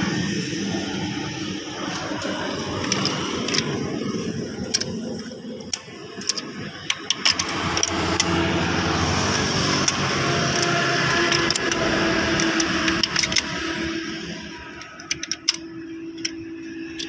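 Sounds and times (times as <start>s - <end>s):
steady background noise: 0.0s - 17.0s
socket wrench metallic clicks: 4.6s - 5.0s, 5.7s - 8.4s, 9.7s - 13.6s, 14.8s - 17.0s.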